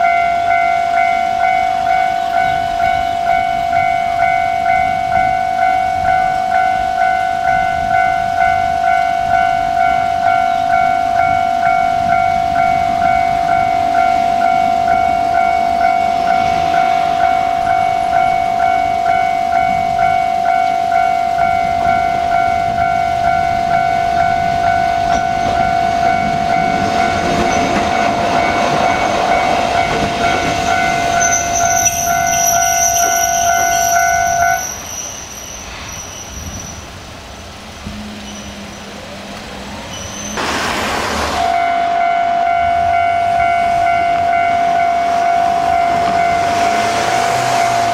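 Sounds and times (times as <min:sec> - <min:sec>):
level-crossing alarm dinging: 0:00.0 - 0:36.7, 0:41.4 - 0:47.9
diesel railcar passing: 0:00.0 - 0:47.9
high wheel squeal: 0:24.7 - 0:37.0, 0:37.9 - 0:39.0, 0:39.7 - 0:47.9.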